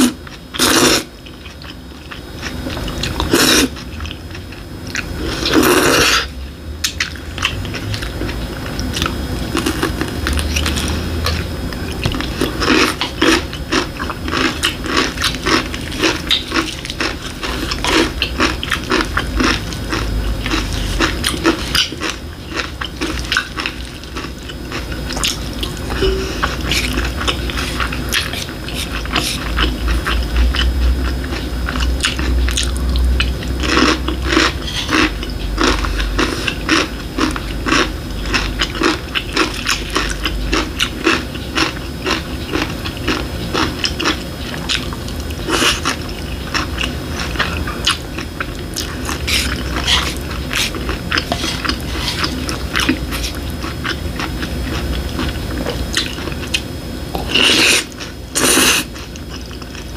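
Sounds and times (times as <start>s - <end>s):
person chewing: 0.0s - 59.9s.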